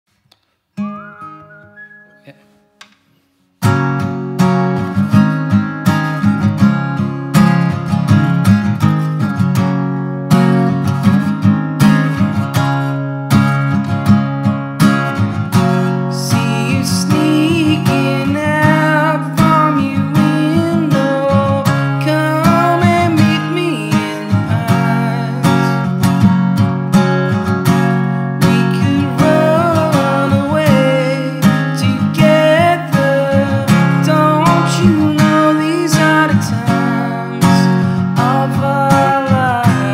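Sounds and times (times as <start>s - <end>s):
acoustic guitar strumming: 0.7s - 39.9s
man singing: 16.1s - 25.9s, 28.4s - 39.9s.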